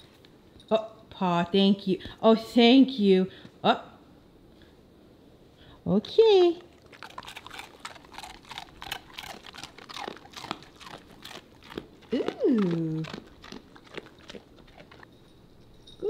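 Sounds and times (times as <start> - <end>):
dog crunching a cookie: 6.4 - 15.1.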